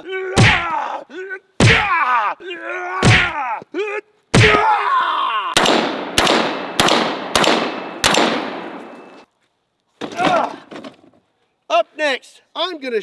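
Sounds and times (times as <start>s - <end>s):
rifle shots: 5.6s - 9.0s.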